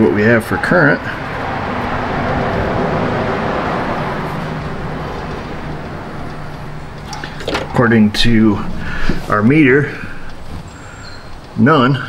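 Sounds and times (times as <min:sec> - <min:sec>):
vehicle road noise passing: 0:00.0 - 0:12.0.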